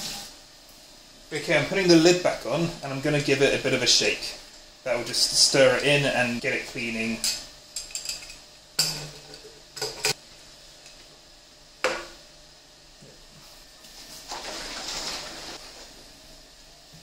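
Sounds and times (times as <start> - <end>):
liquid sloshing in keg: 14.0 - 16.0.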